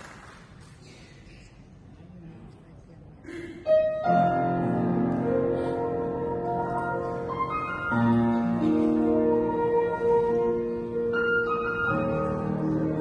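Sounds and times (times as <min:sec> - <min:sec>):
piano chords: 0:03.7 - 0:13.0.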